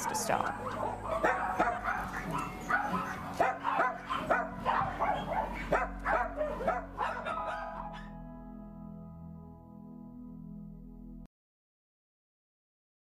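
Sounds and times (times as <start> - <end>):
dogs yipping and whimpering: 0.0 - 8.2.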